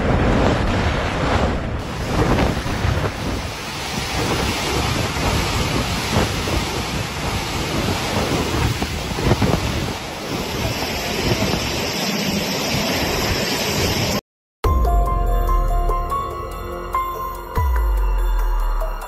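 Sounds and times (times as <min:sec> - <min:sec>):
wind buffeting microphone: 0:00.0 - 0:11.9
surf crashing against seawall: 0:00.0 - 0:14.2.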